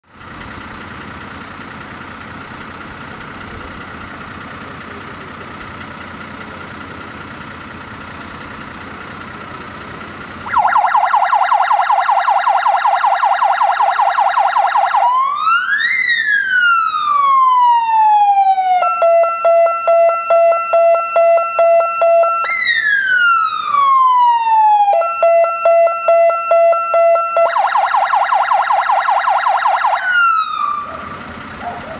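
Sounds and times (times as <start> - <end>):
fire engine electronic siren: 10.4 - 31.9.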